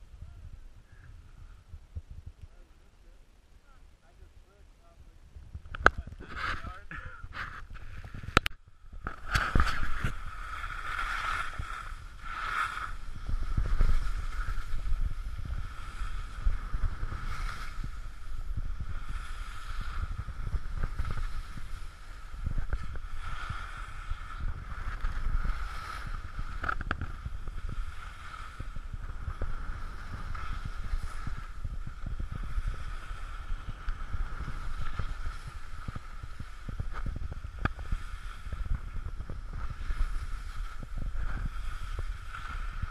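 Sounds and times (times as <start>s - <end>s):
wind on microphone: 0.0s - 3.2s, 4.0s - 42.9s
skis hissing over snow: 9.2s - 42.9s.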